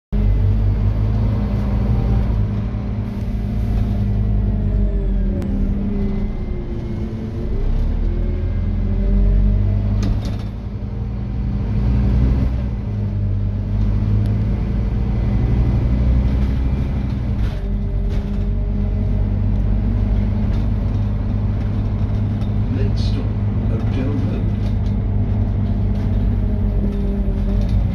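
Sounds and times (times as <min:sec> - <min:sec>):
bus diesel engine droning: 0:00.2 - 0:27.9
sharp clicks from bus: 0:09.8 - 0:10.8, 0:19.4 - 0:27.9.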